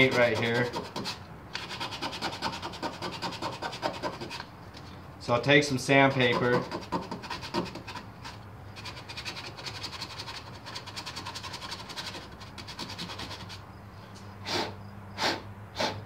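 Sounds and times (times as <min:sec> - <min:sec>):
sandpaper rubbing on metal: 0:00.0 - 0:04.5, 0:05.8 - 0:13.6.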